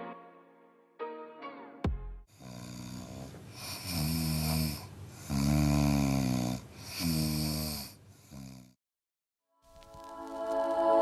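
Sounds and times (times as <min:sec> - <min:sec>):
puppy snoring: 0:02.4 - 0:08.8.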